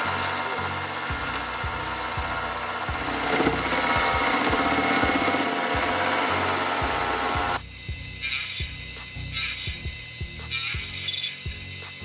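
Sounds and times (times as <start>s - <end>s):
background music with steady beat: 0.0s - 12.0s
mini lathe running: 0.0s - 12.0s
tool cutting aluminum: 0.0s - 12.0s.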